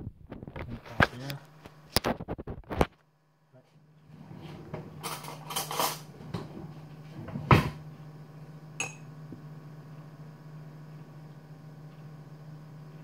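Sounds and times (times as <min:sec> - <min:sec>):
steady low hum: 0:00.0 - 0:13.0
metal spoon clinking on dishes: 0:08.8 - 0:09.0.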